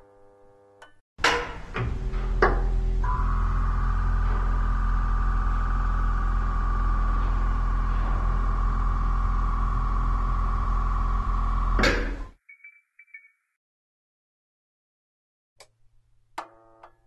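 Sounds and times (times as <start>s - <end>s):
low hum: 1.5s - 12.3s.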